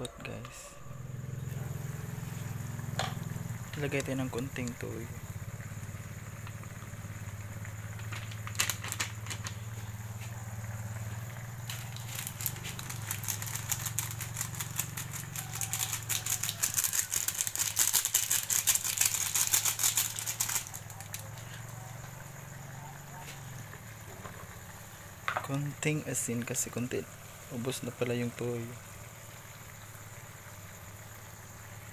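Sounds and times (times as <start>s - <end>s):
granules rattling in a sachet: 8.0s - 9.7s, 11.6s - 21.6s.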